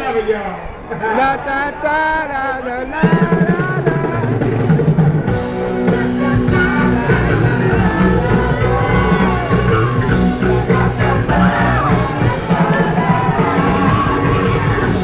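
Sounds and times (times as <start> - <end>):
lead vocal singing: 1.0 - 15.0
funk band playing live: 3.0 - 15.0.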